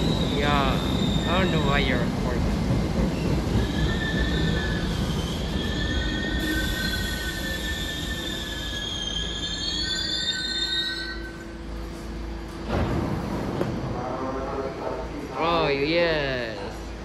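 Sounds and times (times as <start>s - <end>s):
train low rumble: 0.0s - 9.4s
subway train brakes squealing: 0.0s - 12.4s.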